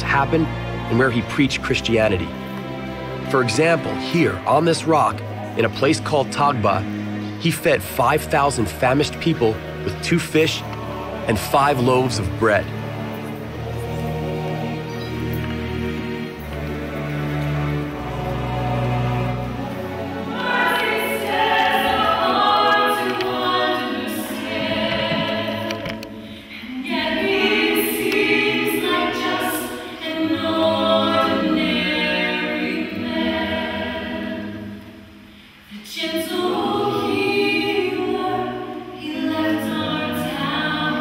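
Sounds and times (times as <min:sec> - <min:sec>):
group singing a hymn a cappella: 0:09.2 - 0:16.2, 0:16.8 - 0:41.0.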